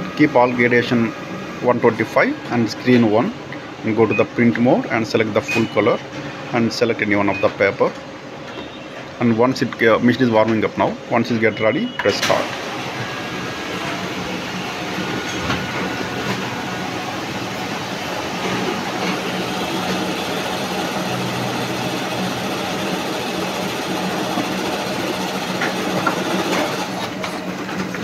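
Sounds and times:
laser printer humming and whirring: 11.8 - 28.0
printer paper feed clicks: 18.3 - 28.0.

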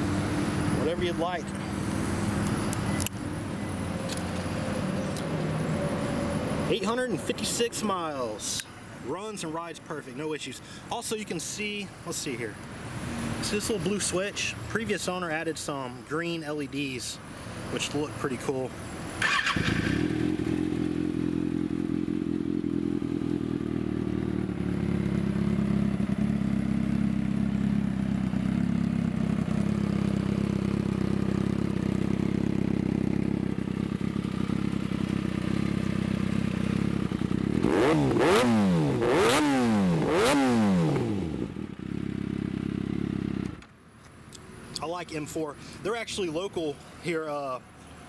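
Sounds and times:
engine revving: 19.2 - 22.7, 36.6 - 41.6
motorcycle engine idling: 19.2 - 37.7, 40.9 - 43.8.

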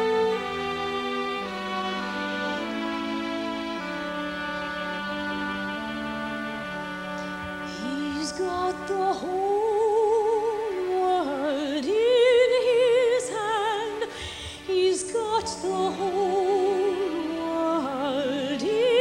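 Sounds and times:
soft instrumental accompaniment: 0.0 - 19.0
operatic soprano singing: 7.6 - 19.0.

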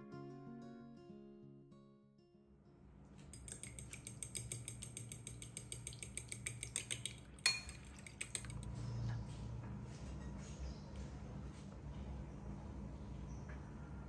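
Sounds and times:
fork clinking against glass bowl: 3.3 - 8.7.

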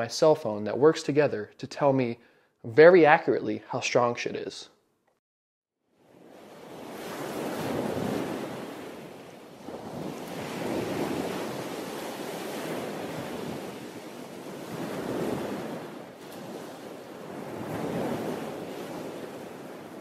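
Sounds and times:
ocean surf rushing: 6.1 - 20.0.

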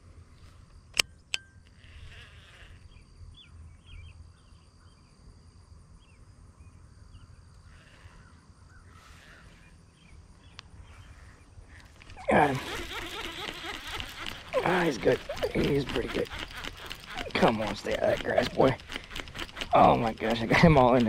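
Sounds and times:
fishing reel clicks: 11.8 - 21.0.

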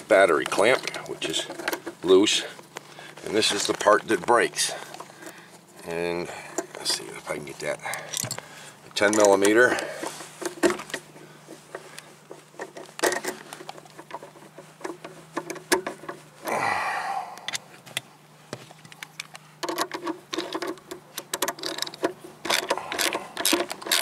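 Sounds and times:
tools clicking and knocking: 0.4 - 2.0, 7.9 - 11.0, 11.7 - 16.2, 17.5 - 24.0
socket ratchet clicking: 19.0 - 24.0.

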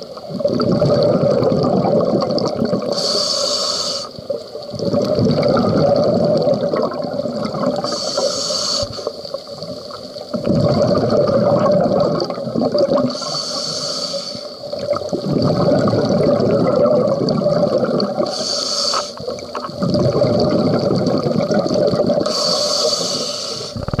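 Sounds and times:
exhaust bubbles bubbling: 0.0 - 2.9, 4.7 - 7.9, 10.3 - 13.1, 14.8 - 18.3, 19.4 - 22.3
scuba regulator hissing inhales: 2.9 - 4.2, 7.8 - 9.2, 13.1 - 14.7, 18.2 - 19.4, 22.2 - 23.9.

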